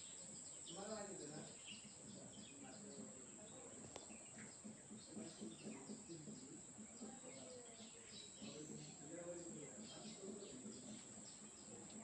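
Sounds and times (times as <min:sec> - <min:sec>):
faint distant voices: 0:00.0 - 0:12.0
small birds chirping: 0:00.0 - 0:12.0.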